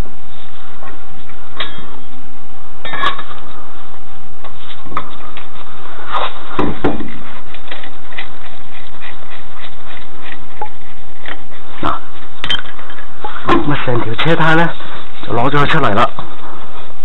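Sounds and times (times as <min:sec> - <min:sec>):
heavy thump: 0:06.6 - 0:07.1.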